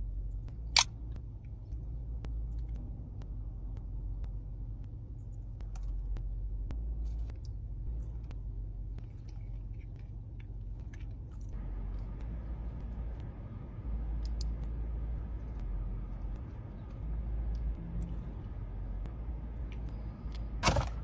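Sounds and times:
car cabin rumble: 0.0 - 21.0.

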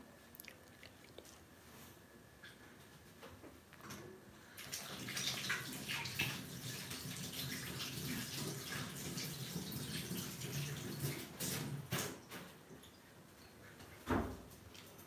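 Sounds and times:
water running from tap into sink: 4.6 - 11.8.

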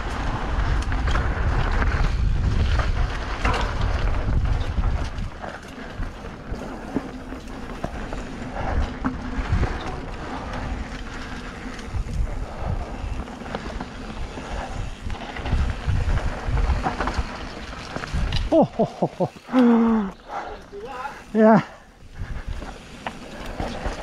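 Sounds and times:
wind rushing over microphone: 0.0 - 6.8, 7.6 - 18.5, 22.0 - 22.8
tyres rolling over dirt: 0.0 - 24.0
bike thumping over bumps: 0.2 - 10.7.

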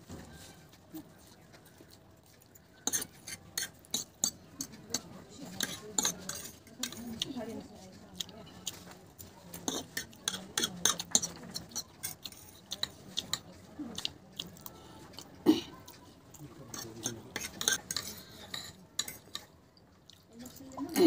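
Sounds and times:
chewing: 0.4 - 21.0
forks clinking and scraping on plate: 2.8 - 7.2, 9.6 - 13.5, 16.6 - 19.5.

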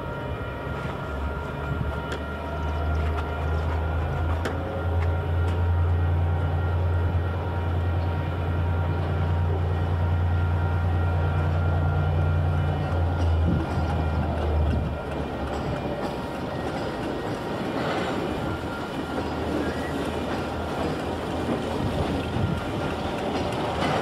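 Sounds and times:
diesel locomotive engine droning: 0.0 - 24.0.

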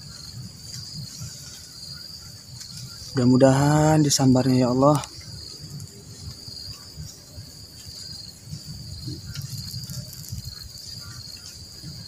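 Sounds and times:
insects chorus: 0.0 - 12.0.

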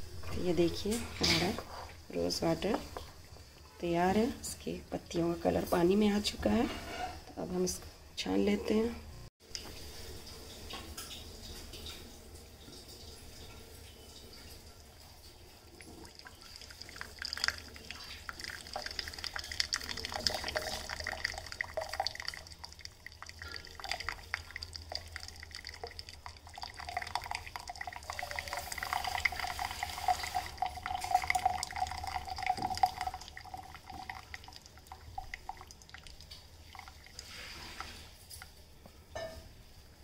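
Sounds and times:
small drips and splashes: 9.4 - 38.9
water trickling into a glass mug: 9.6 - 38.6.

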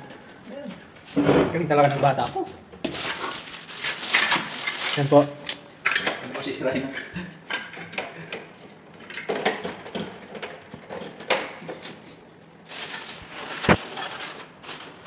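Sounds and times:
plastic parts clicking and knocking: 5.8 - 6.5, 7.5 - 11.8.

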